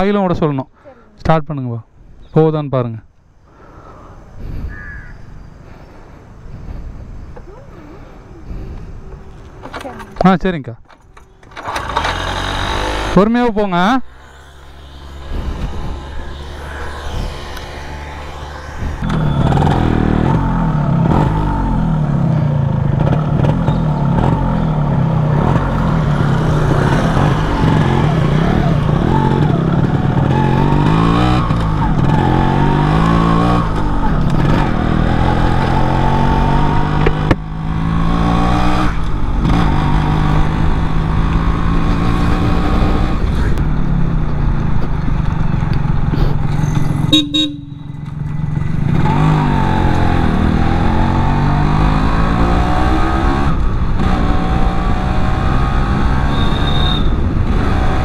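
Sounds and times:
two-stroke motorcycle engine revving: 11.5 - 58.0
horn toot: 47.1 - 48.0, 56.2 - 57.3.

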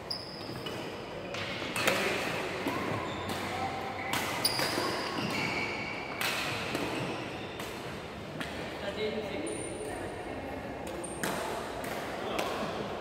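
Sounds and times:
racket hitting shuttlecock: 1.4 - 5.4, 6.1 - 8.7, 10.9 - 13.0
shoes squeaking on wooden floor: 2.9 - 6.1.

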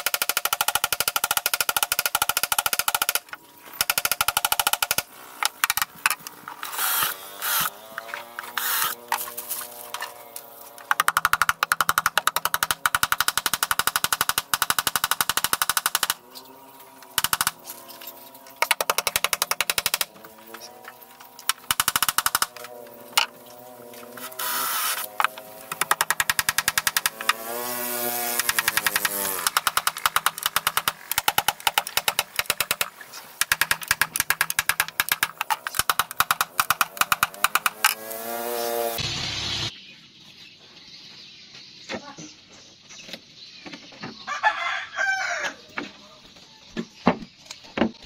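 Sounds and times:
cordless drill driving screws: 6.6 - 10.0, 24.1 - 25.9.

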